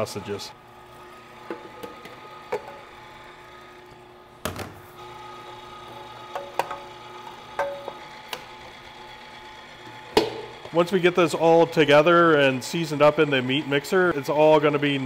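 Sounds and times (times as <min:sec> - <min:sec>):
meat grinder motor humming: 0:00.0 - 0:04.4, 0:05.0 - 0:15.0
metal bowl knocking and clinking: 0:07.6 - 0:08.0.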